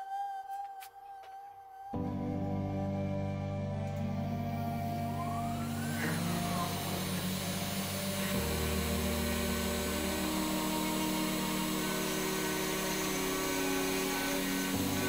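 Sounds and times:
background music: 0:00.0 - 0:15.0
stepper motors whining: 0:03.0 - 0:15.0
spindle motor hiss: 0:04.0 - 0:15.0.

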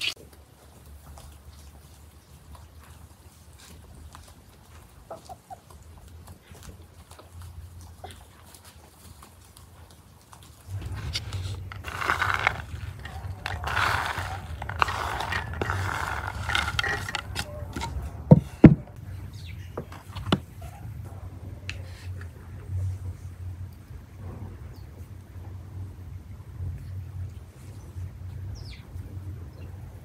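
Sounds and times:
fried pieces pattering onto rice: 0:07.0 - 0:17.8.

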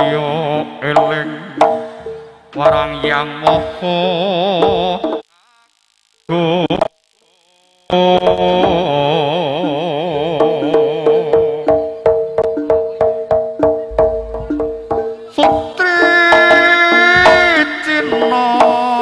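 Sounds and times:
gamelan music: 0:10.5 - 0:15.4
even drum strokes: 0:13.6 - 0:17.6
bright higher melody: 0:13.9 - 0:15.1.

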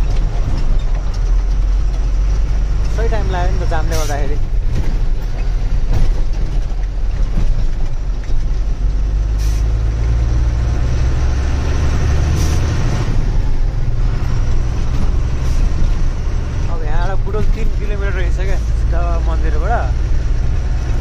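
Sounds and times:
truck engine running: 0:00.0 - 0:21.0.

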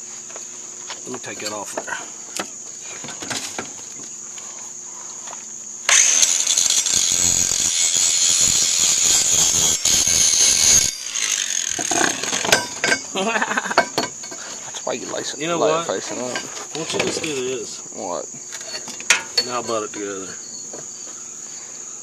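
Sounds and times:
crickets chirping: 0:00.0 - 0:22.0
angle grinder cutting steel pipe: 0:05.9 - 0:13.0
sharp metal knocks: 0:10.6 - 0:13.1, 0:13.7 - 0:14.4.

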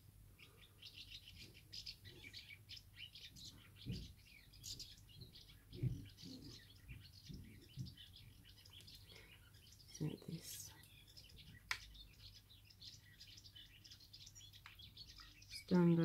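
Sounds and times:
birds chirping: 0:00.0 - 0:16.0
soft low thumps: 0:03.8 - 0:08.4.

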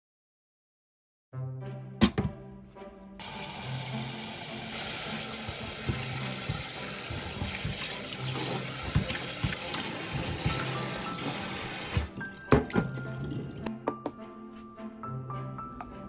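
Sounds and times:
tap running water splashing: 0:03.2 - 0:13.7.

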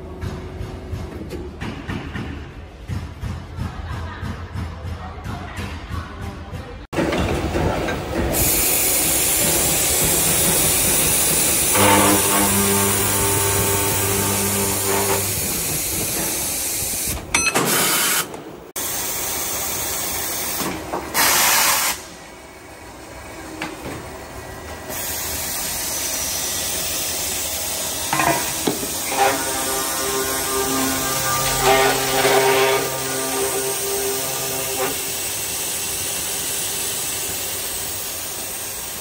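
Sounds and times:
metal saw cutting steel: 0:11.6 - 0:15.6, 0:28.1 - 0:35.4.

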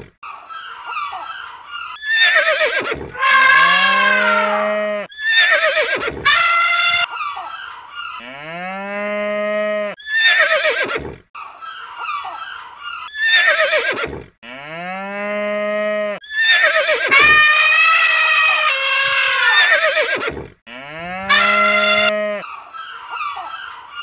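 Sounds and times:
cow mooing: 0:03.1 - 0:05.1, 0:08.2 - 0:10.0, 0:14.4 - 0:16.2, 0:20.7 - 0:22.4
short high-pitched animal calls: 0:21.2 - 0:22.6.

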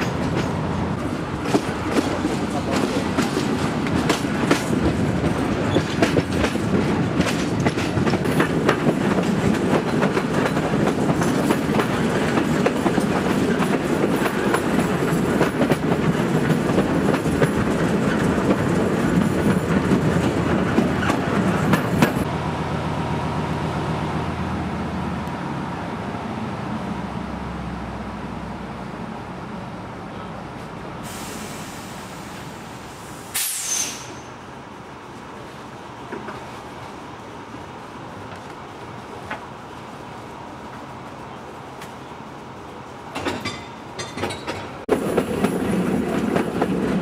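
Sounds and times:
wheels clicking over rail joints: 0:00.0 - 0:22.3, 0:43.1 - 0:47.0
train wheels rumbling on rails: 0:00.0 - 0:47.0.

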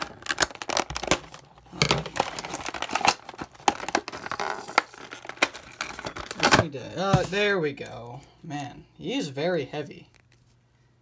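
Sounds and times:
toy packaging crinkling and clicking: 0:00.0 - 0:08.7, 0:10.0 - 0:10.6.

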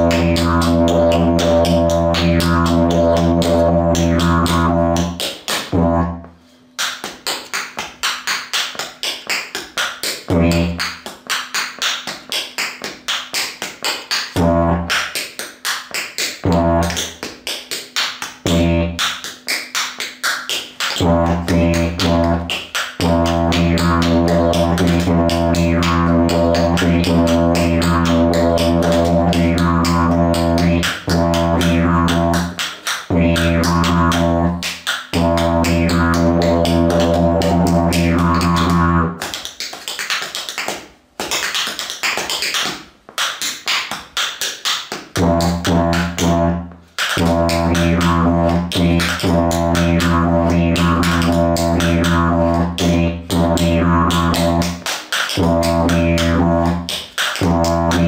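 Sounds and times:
didgeridoo drone: 0:00.0 - 0:06.3, 0:10.3 - 0:10.8, 0:14.4 - 0:15.0, 0:16.4 - 0:17.1, 0:18.5 - 0:19.0, 0:21.0 - 0:39.2, 0:45.2 - 0:58.0.

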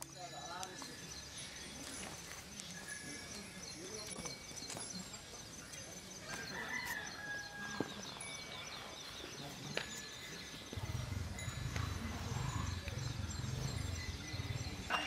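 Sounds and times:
rooster crowing: 0:06.3 - 0:07.9
low pulsing sound: 0:10.7 - 0:15.0.

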